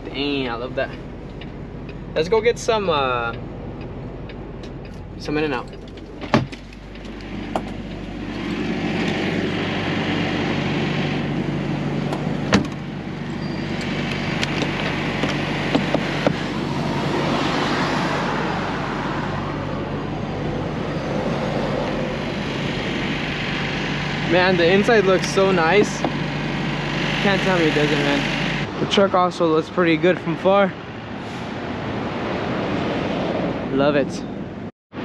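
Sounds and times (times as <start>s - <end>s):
passing road traffic: 0.0s - 35.0s
truck diesel engine idling: 6.6s - 17.2s, 19.3s - 28.7s.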